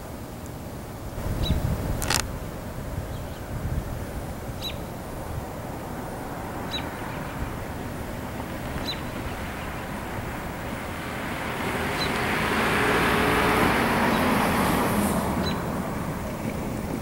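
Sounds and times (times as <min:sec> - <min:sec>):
distant diesel locomotives rumbling: 0:02.4 - 0:17.0
bird chirping: 0:04.6 - 0:04.9.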